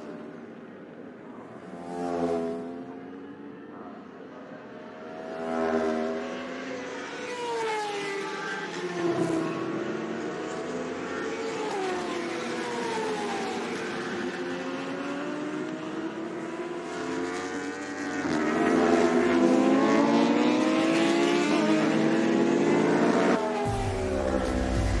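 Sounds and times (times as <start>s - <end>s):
racing motorcycle engines revving: 4.5s - 7.2s, 8.1s - 25.0s.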